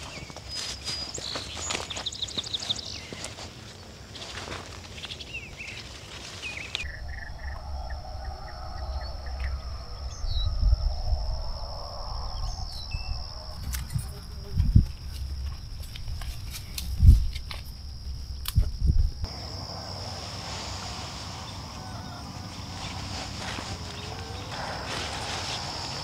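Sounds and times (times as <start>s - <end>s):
birds chirping: 0.0s - 3.4s, 4.9s - 15.8s
low rumble: 6.8s - 19.9s
high insect buzz: 6.8s - 26.0s.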